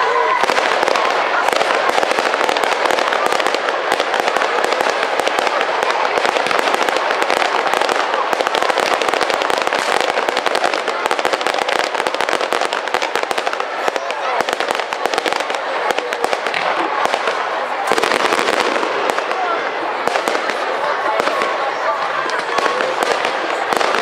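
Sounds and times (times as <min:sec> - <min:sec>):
fireworks crackling and banging: 0:00.0 - 0:24.0.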